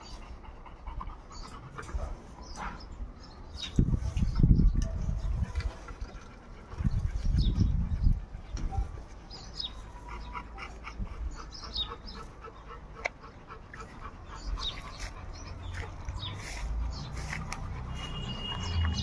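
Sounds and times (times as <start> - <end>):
dogs whimpering: 5.1 - 19.0.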